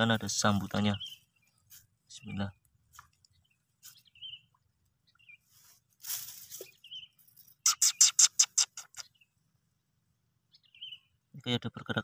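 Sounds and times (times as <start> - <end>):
bird chirps: 0.0 - 9.4, 10.5 - 11.5
brief rustle: 5.6 - 7.6
bird chattering rattle: 6.4 - 9.2.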